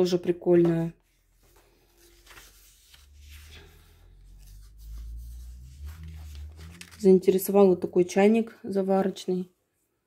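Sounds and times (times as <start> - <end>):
paper pages rustling: 0.8 - 7.6
low rumble: 2.9 - 7.9.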